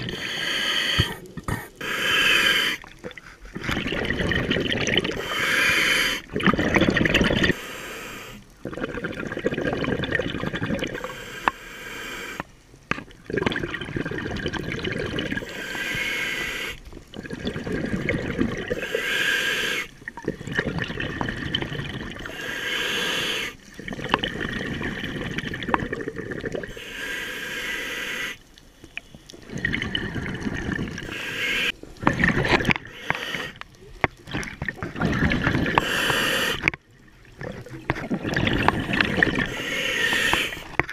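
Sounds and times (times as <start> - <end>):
diver breathing through regulator: 0.0 - 4.0, 5.0 - 6.3, 7.5 - 8.5, 10.9 - 12.5, 15.4 - 16.8, 18.6 - 19.9, 22.2 - 23.6, 26.6 - 28.5, 29.4 - 31.8, 32.4 - 33.6, 35.5 - 36.8, 38.3 - 40.9.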